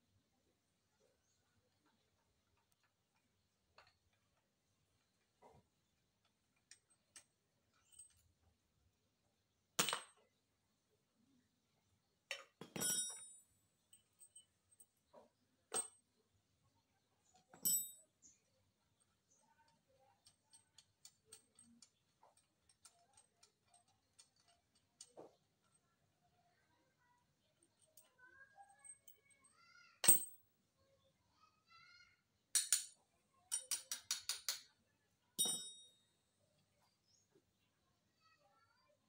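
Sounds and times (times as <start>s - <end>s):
metal tools clinking on engine: 35.4s - 35.8s.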